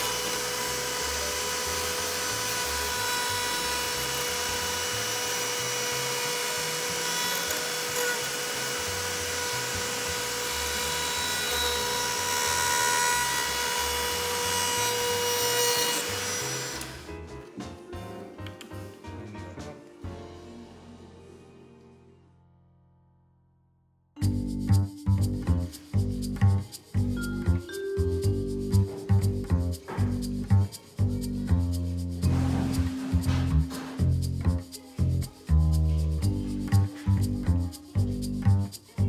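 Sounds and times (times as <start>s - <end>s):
rotary tool whining: 0.0s - 17.1s
background music with steady beat: 15.3s - 22.2s, 24.2s - 39.0s.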